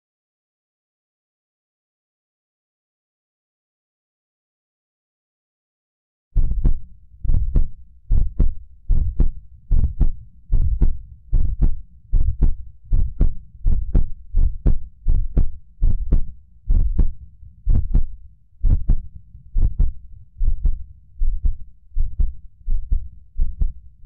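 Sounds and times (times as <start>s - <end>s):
heartbeat: 6.4s - 23.8s
low steady hum: 6.4s - 24.0s.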